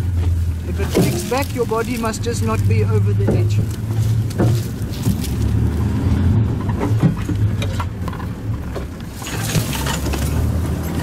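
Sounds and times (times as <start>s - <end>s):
branches crackling and scraping: 0.0s - 11.0s
vehicle engine running: 0.0s - 11.0s.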